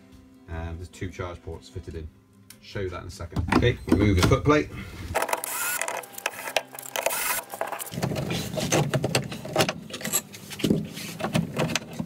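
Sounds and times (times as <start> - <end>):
cordless drill running: 5.2 - 7.9
screwdriver clicking and scraping: 5.2 - 10.4
metal parts being handled: 5.2 - 12.0.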